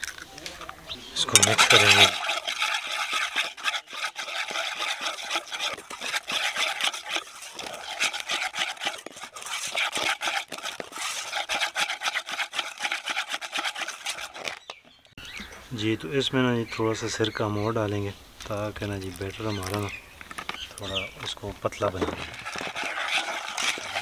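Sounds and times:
whisk beating batter in metal bowl: 0:01.2 - 0:14.8, 0:21.8 - 0:24.0.

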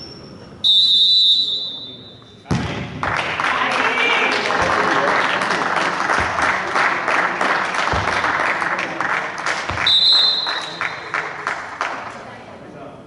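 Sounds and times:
referee whistle: 0:00.0 - 0:02.4, 0:09.8 - 0:11.0
crowd clapping and cheering: 0:03.0 - 0:12.3.

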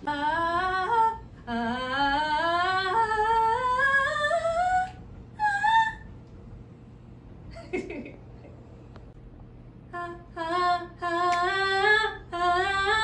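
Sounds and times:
woman singing rising scale: 0:00.0 - 0:06.2, 0:09.9 - 0:13.0.

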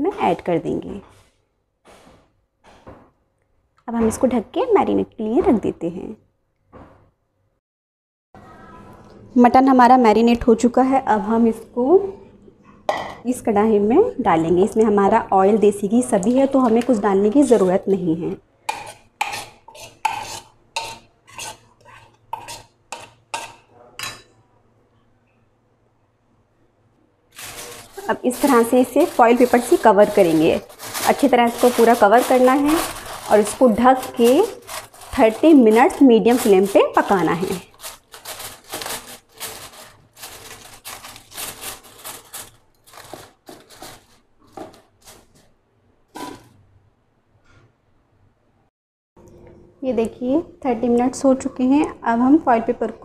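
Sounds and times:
spoon scraping a bowl: 0:18.7 - 0:24.3, 0:46.2 - 0:46.6
aluminium foil crinkling: 0:27.3 - 0:45.5.

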